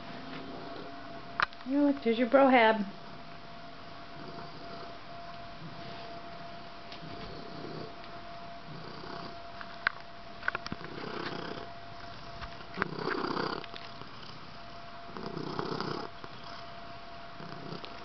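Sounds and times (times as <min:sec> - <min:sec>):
cat purring: 0:00.3 - 0:01.0, 0:04.1 - 0:05.0, 0:07.0 - 0:08.0, 0:08.6 - 0:09.4, 0:10.7 - 0:16.8, 0:17.4 - 0:18.0.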